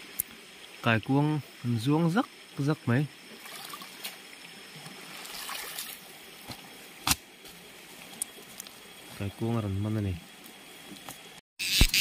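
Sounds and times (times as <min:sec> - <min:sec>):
water splashing and dripping: 0:00.0 - 0:09.2.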